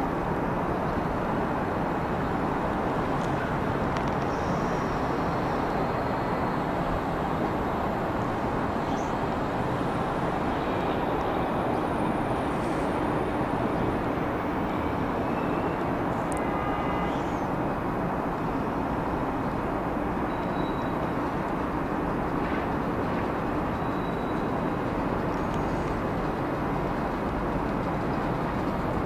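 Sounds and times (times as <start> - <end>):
electric locomotive rushing noise: 0.0 - 16.2.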